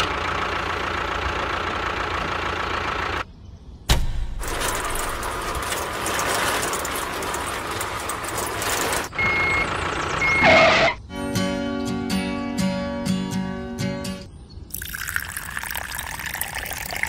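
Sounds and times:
music: 11.0s - 14.3s.

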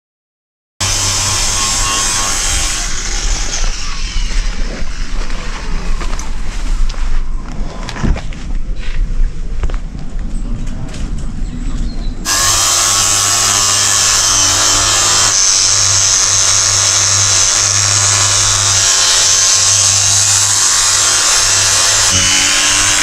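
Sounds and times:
angle grinder grinding metal: 0.8s - 5.8s, 12.2s - 23.0s.

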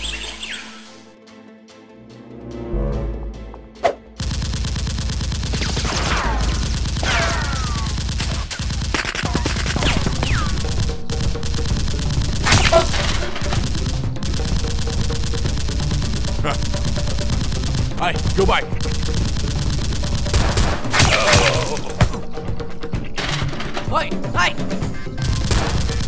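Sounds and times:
rapid automatic gunfire: 4.2s - 21.5s, 25.2s - 26.0s.

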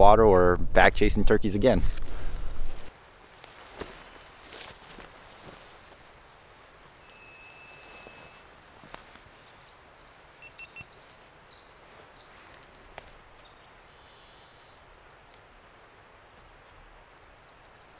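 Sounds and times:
short peeps: 7.0s - 8.4s, 10.4s - 10.9s
songbird trills: 7.0s - 17.9s.

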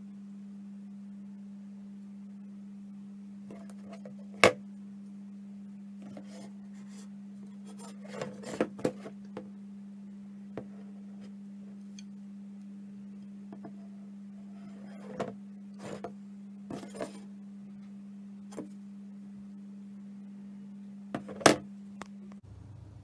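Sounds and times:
steady low hum: 0.0s - 23.0s
handling noises: 16.7s - 17.3s.

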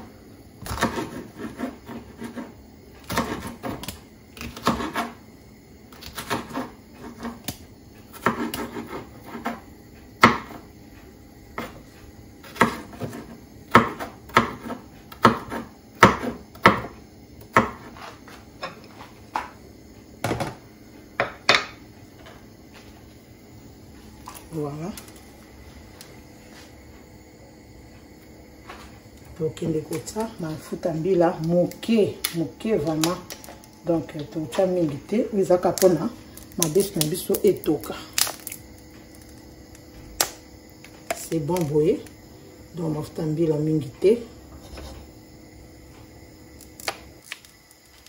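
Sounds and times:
knife chopping on wooden board: 0.6s - 2.5s, 3.1s - 5.1s, 8.2s - 9.6s, 10.2s - 10.6s, 12.4s - 16.9s, 17.5s - 17.9s
spatula scraping on board: 0.7s - 3.8s, 8.2s - 9.6s, 44.5s - 45.0s.

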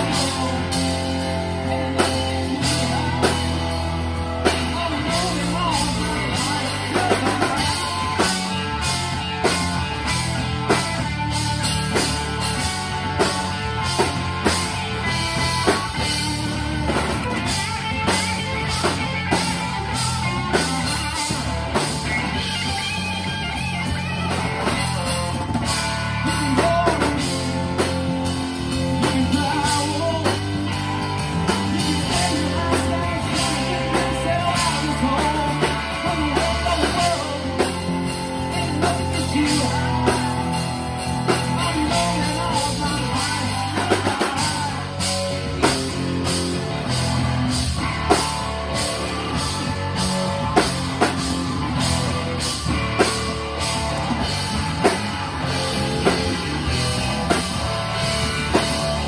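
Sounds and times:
person singing: 0.0s - 10.1s, 26.1s - 45.8s
bass guitar: 0.0s - 59.0s
drum kit: 0.0s - 59.0s
electric guitar: 0.0s - 59.0s
electric keyboard: 0.0s - 59.0s.

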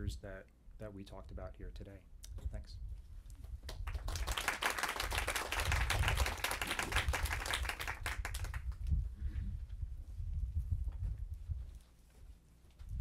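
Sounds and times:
audience applauding: 3.8s - 8.7s.

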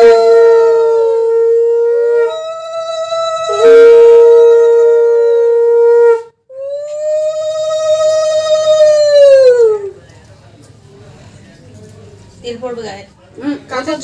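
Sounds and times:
low conch shell blast: 0.0s - 9.1s.

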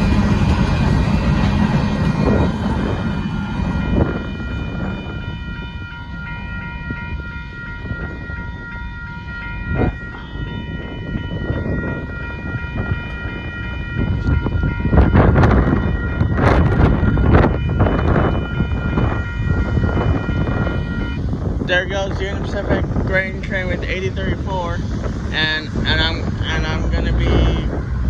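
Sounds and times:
rush of noise: 0.0s - 8.6s, 9.6s - 28.0s
freight train rumbling past: 0.0s - 28.0s
railroad crossing bells ringing: 0.0s - 28.0s.

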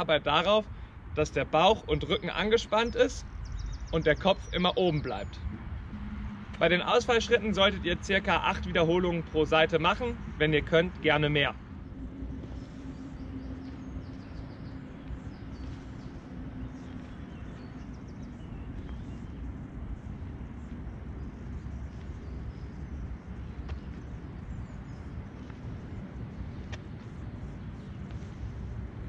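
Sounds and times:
distant traffic rumble: 0.0s - 29.0s.

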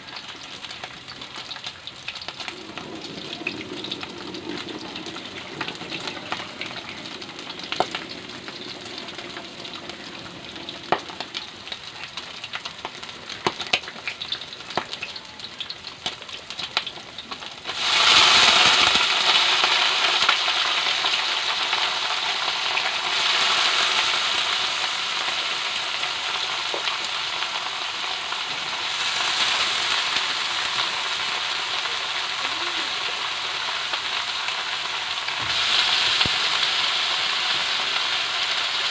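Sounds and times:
meat sizzling in a wok: 0.0s - 38.9s
loud steady oil hiss: 17.4s - 38.9s.

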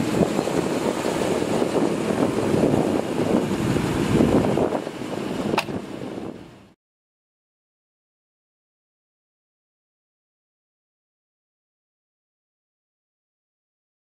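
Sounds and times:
steady low rumble: 0.0s - 6.8s
wind buffeting microphone: 0.0s - 6.8s
sharp click: 5.5s - 5.8s.

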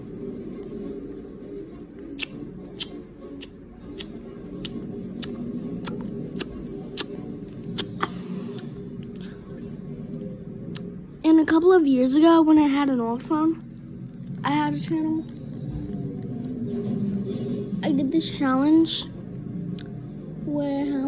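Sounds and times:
low steady hum: 0.0s - 21.0s
lip smacks and tongue clicks: 2.1s - 7.2s, 7.8s - 8.7s.

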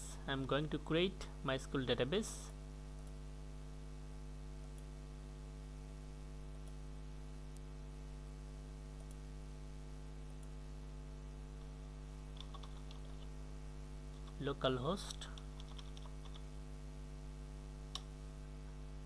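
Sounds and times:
steady electrical hum: 0.0s - 19.0s
computer mouse clicks: 9.0s - 9.2s, 12.3s - 13.3s, 14.1s - 14.4s, 15.1s - 16.5s, 17.9s - 18.1s.

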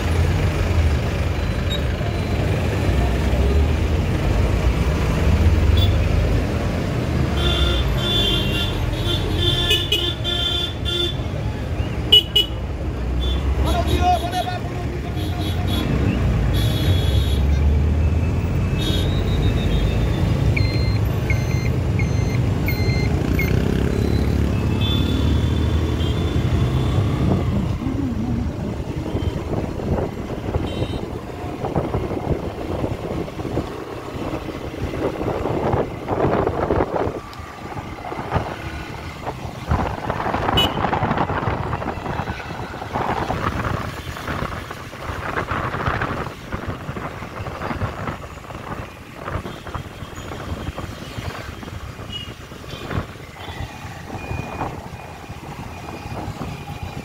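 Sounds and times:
road and wind noise: 0.0s - 57.0s
vehicle engine rumbling: 0.0s - 57.0s
short beeps: 20.6s - 24.4s.

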